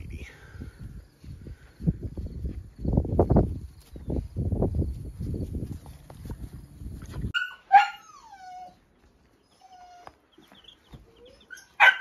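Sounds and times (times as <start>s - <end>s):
puppy whining: 7.4s - 12.0s.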